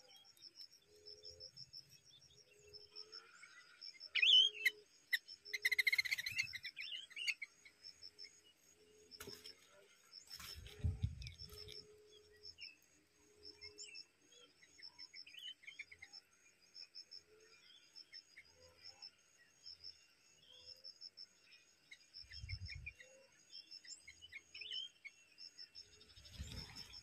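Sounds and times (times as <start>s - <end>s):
insects chirping: 0.0s - 27.0s
high bird chirps: 4.2s - 7.5s.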